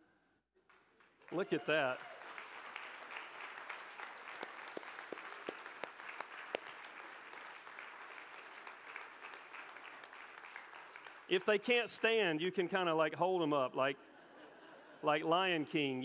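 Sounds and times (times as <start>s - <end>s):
crowd applauding: 0.6s - 12.3s.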